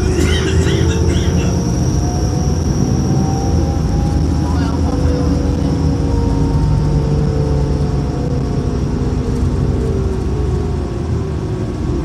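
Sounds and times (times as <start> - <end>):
bus engine rumble with whine: 0.0 - 12.0.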